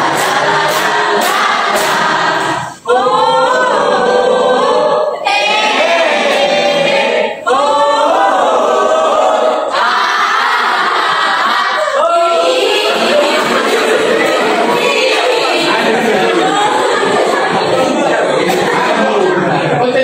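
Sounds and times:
hand claps: 0:00.0 - 0:02.6
students singing in unison: 0:00.0 - 0:19.8.

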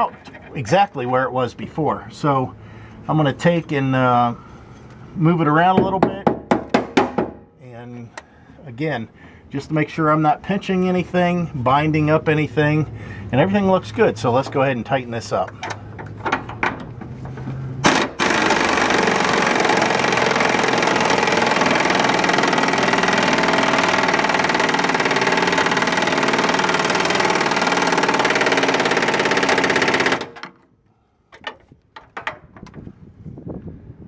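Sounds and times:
impact wrench hammering: 0:05.8 - 0:07.4, 0:17.8 - 0:30.5.

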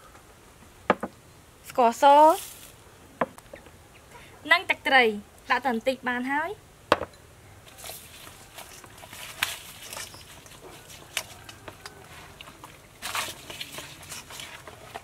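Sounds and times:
hands rustling wet herbs: 0:02.1 - 0:02.8, 0:07.6 - 0:15.0.

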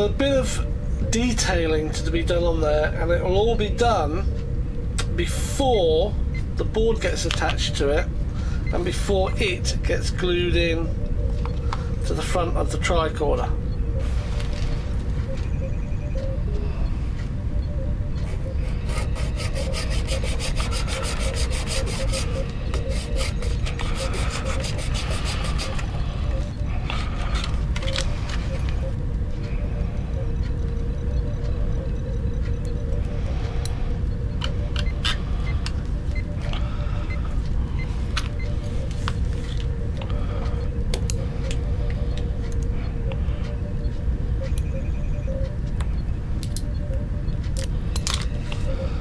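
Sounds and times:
low background hum: 0:00.0 - 0:49.0
hand saw cutting back and forth: 0:18.8 - 0:22.3, 0:22.9 - 0:25.8.

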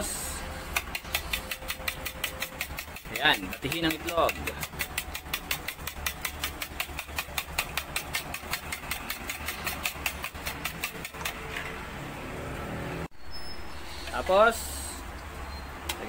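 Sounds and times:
spoon beating eggs in a bowl: 0:00.8 - 0:11.4.

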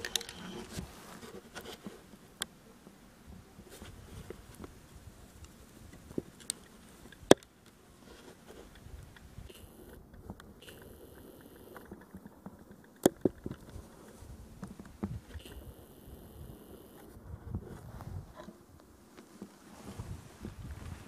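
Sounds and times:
small sharp clicks: 0:00.0 - 0:00.8, 0:05.4 - 0:07.8, 0:08.4 - 0:17.1
soft rustles: 0:00.0 - 0:10.9, 0:17.0 - 0:21.0.

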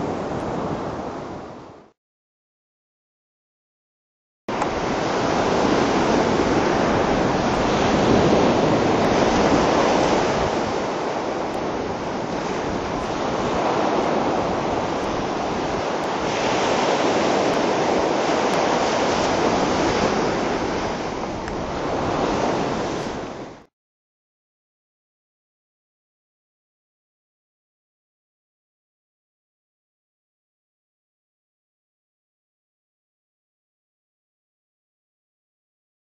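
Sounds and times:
ocean surf: 0:00.0 - 0:02.0, 0:04.5 - 0:23.7
wind: 0:00.0 - 0:02.0, 0:04.5 - 0:23.7.

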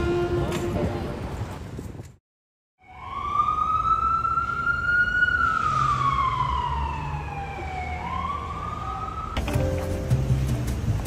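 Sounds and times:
siren wailing: 0:02.8 - 0:09.4.

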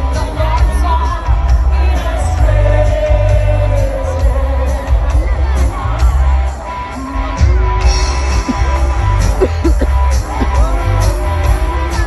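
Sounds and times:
live band amplified music: 0:00.0 - 0:12.0
pulsing bass beat: 0:07.3 - 0:12.0.

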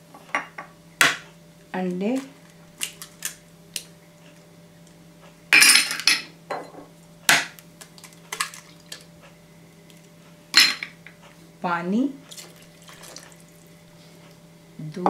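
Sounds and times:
egg cracking: 0:02.2 - 0:03.9
small glass clinking: 0:05.6 - 0:06.9, 0:10.6 - 0:11.0.

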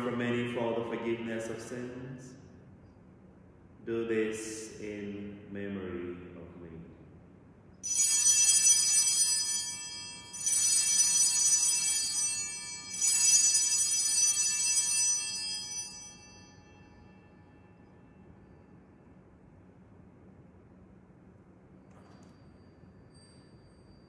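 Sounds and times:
small altar bells ringing: 0:07.8 - 0:18.7, 0:22.0 - 0:24.0.

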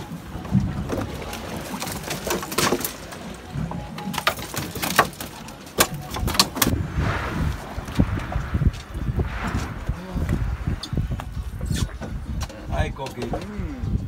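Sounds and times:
background music: 0:00.0 - 0:14.0
knocks and thumps in fish box: 0:00.4 - 0:06.7.

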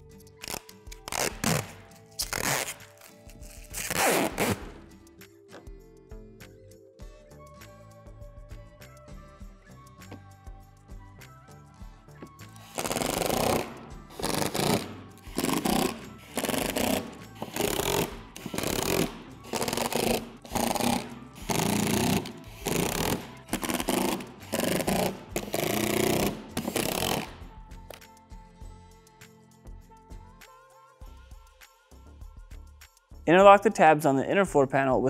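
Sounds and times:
background music: 0:00.0 - 0:35.0
power driver driving screws: 0:12.6 - 0:27.4.

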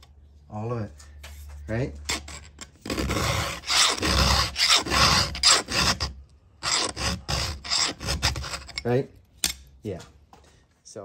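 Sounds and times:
file rasping on saw chain: 0:02.1 - 0:08.9.

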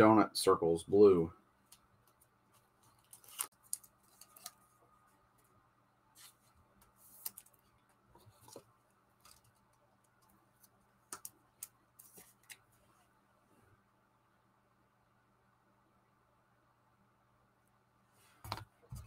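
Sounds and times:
faint plastic rustling: 0:01.6 - 0:13.2.

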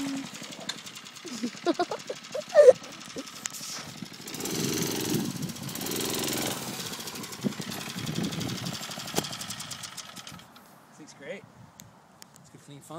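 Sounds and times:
mini bike engine revving: 0:00.0 - 0:10.6.

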